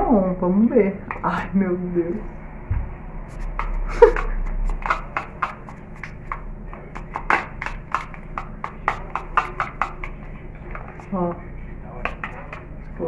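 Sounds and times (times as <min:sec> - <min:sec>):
brush tapping and scraping plastic bowl: 0:03.3 - 0:13.0.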